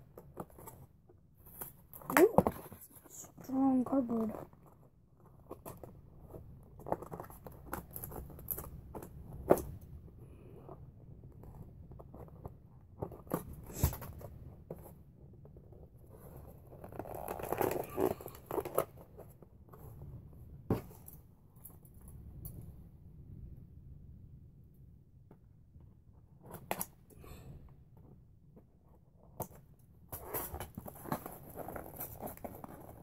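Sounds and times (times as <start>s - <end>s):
cardboard rustling and tearing: 30.2s - 33.0s.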